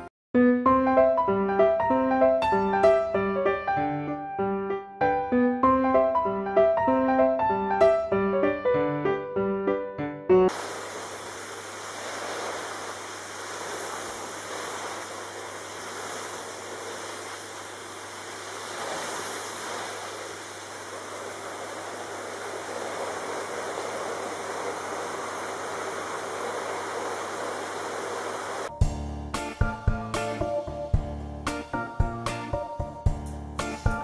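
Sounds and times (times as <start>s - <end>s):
vacuum cleaner running: 10.5s - 28.8s.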